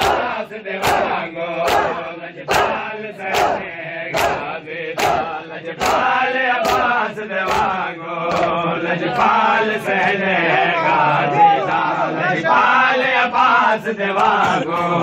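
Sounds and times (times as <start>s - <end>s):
chest-beating slaps: 0.0s - 8.6s
men chanting in unison: 0.0s - 15.0s.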